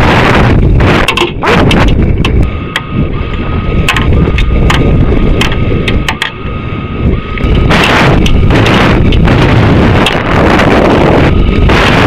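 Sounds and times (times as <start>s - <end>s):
rocket rumble: 0.0s - 12.0s
thin high whine: 0.0s - 12.0s
sharp rattling clicks: 0.9s - 6.4s, 7.3s - 10.4s.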